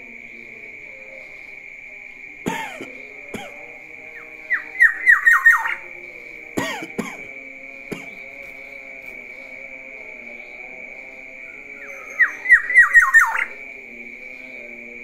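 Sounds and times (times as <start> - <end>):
bird harsh calls: 4.5 - 5.9, 11.8 - 13.6
falling whistled bird notes: 11.8 - 13.5.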